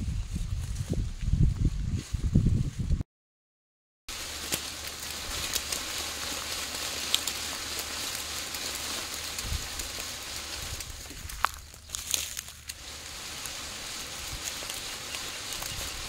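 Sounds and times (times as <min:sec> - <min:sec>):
leaves rustling: 0:04.1 - 0:16.0
twigs snapping: 0:04.1 - 0:16.0.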